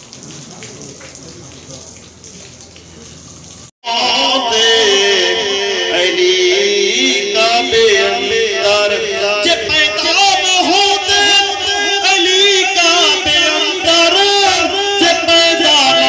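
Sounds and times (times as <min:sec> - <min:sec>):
man chanting over loudspeakers: 0:03.8 - 0:16.0.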